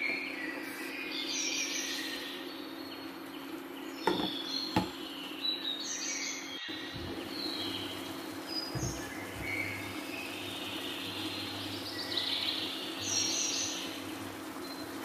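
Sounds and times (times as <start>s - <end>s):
birds chirping: 0.0s - 15.0s
steady low hum: 6.5s - 15.0s.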